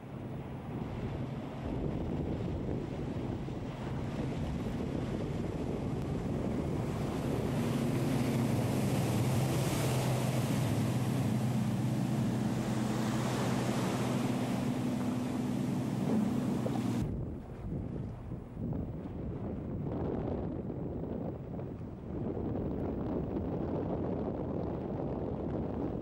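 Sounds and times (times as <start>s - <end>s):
boat engine droning: 0.0s - 17.6s
rushing water: 0.0s - 17.6s
wind buffeting microphone: 0.0s - 26.0s.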